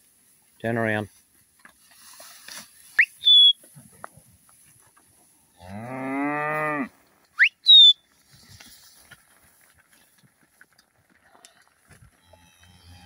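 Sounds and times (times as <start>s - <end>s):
shrill two-part whistles: 3.0s - 3.6s, 7.4s - 8.0s
cow mooing: 5.6s - 6.9s.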